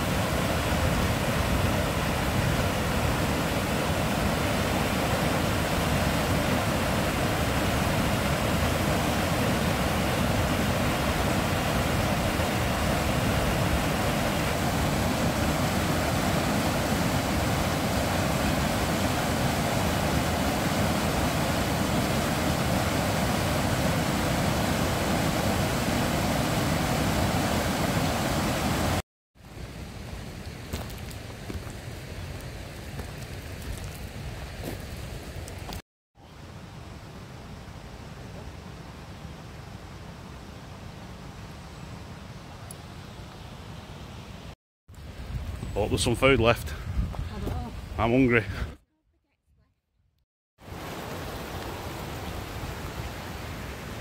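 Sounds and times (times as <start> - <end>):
water rushing over rocks: 0.0 - 29.0, 50.6 - 54.0.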